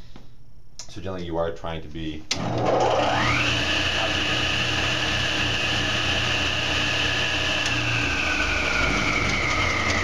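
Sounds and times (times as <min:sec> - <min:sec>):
table saw whine: 0:02.4 - 0:10.0.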